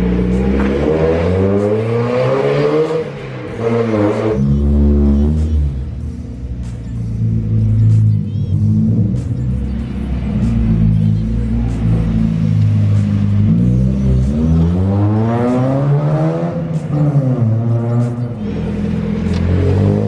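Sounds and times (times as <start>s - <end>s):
car engine accelerating: 0.0s - 20.0s.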